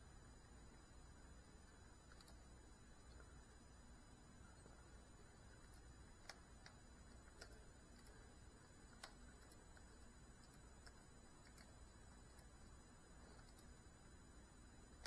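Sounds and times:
soft ticks: 5.6 - 13.8.

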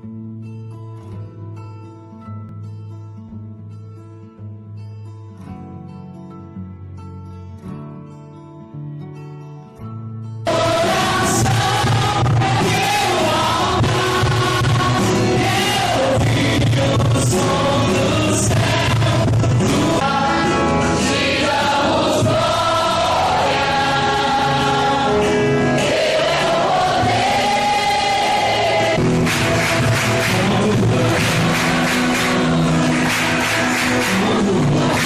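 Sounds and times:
group of voices singing: 10.5 - 35.0
instrumental accompaniment: 10.5 - 35.0.

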